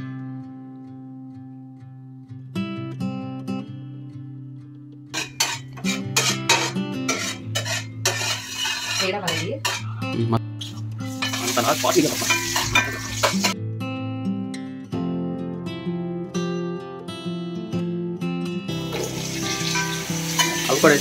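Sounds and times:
soft guitar music: 0.0 - 21.0
spices sizzling in oil: 5.2 - 9.8, 10.6 - 13.6, 18.7 - 21.0
metal spatula scraping a pan: 5.2 - 10.0, 11.1 - 13.6, 18.9 - 21.0.

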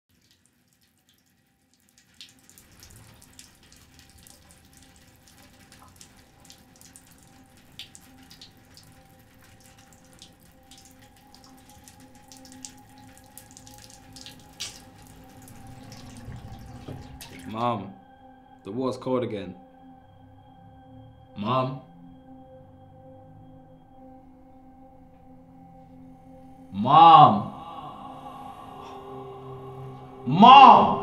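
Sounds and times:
tap water splashing on hand: 0.1 - 17.6.

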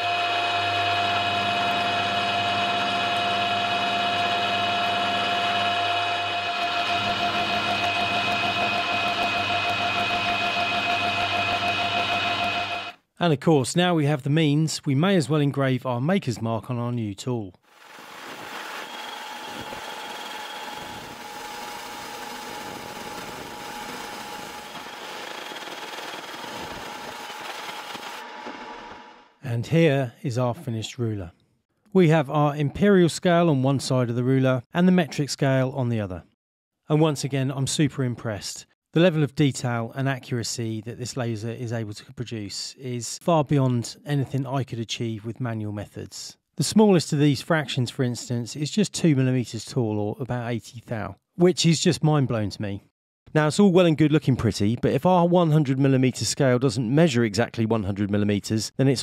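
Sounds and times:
milling spindle whine: 0.0 - 13.0, 18.3 - 29.2.

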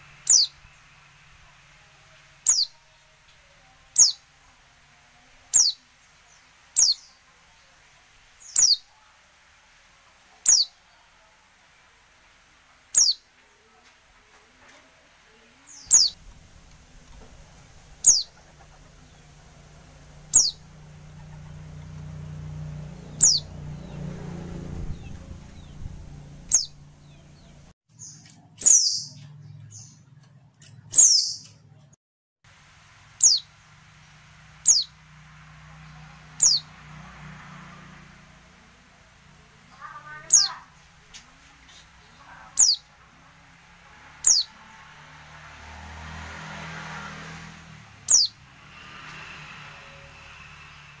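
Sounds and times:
high thin bird calls: 0.2 - 0.6, 2.4 - 2.8, 10.4 - 10.8, 12.9 - 13.3, 15.7 - 16.2, 17.9 - 19.3, 20.3 - 21.6, 23.1 - 24.0, 26.5 - 29.3, 39.8 - 40.8, 42.6 - 42.9, 44.2 - 44.5.

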